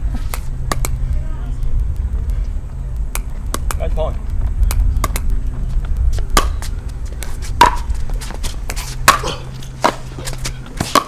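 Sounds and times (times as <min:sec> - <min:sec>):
faint distant ball pops: 0:03.1 - 0:03.9
paddle hitting plastic ball: 0:03.2 - 0:03.8.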